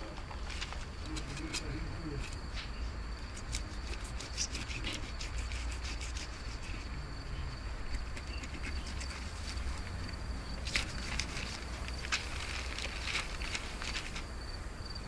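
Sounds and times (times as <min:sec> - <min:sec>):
fish being gutted on newspaper: 0:00.2 - 0:02.6, 0:03.2 - 0:06.8, 0:10.6 - 0:14.3
low wind rumble: 0:05.1 - 0:15.0.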